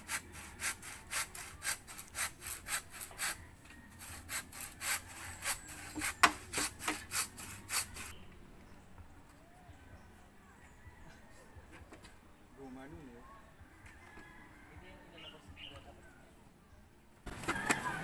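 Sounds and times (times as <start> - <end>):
hand saw cutting bamboo: 0.0 - 8.2.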